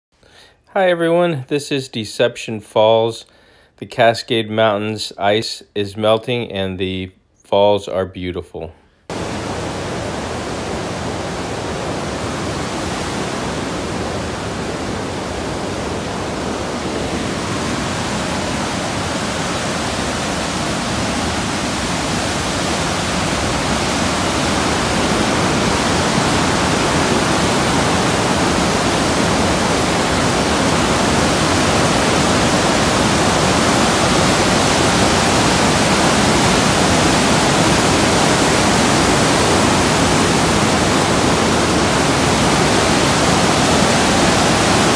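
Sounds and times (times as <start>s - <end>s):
waterfall rushing: 9.1s - 44.9s.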